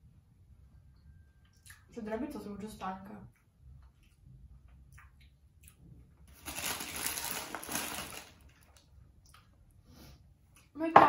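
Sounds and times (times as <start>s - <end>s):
paper bag crumpling: 6.3s - 8.8s.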